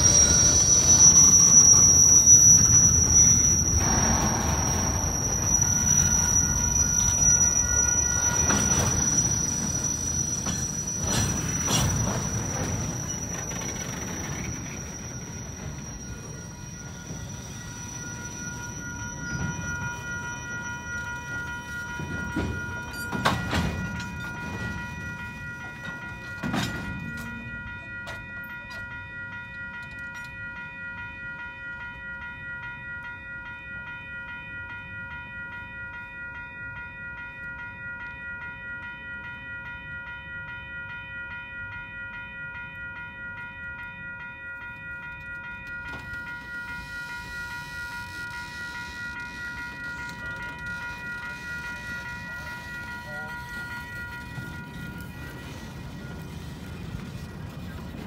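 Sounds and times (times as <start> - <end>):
train wheels rumbling: 0.0 - 30.3, 44.7 - 58.0
level crossing warning bell: 0.0 - 58.0.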